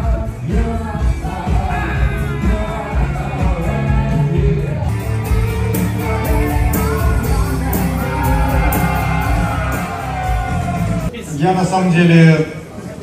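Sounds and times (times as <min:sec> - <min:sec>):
pop-rock band with singing: 0:00.0 - 0:11.1.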